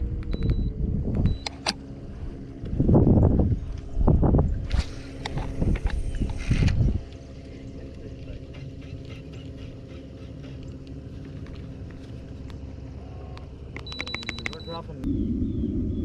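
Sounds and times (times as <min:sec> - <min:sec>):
wind buffeting microphone: 0:00.0 - 0:01.4, 0:02.1 - 0:07.1
steady low hum: 0:00.0 - 0:16.0.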